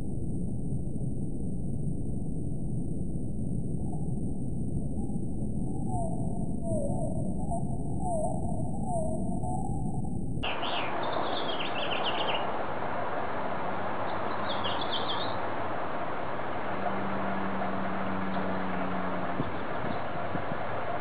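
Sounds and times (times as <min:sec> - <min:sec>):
low steady hum: 0:00.0 - 0:21.0
high bird chirps: 0:05.8 - 0:12.5, 0:14.1 - 0:15.4.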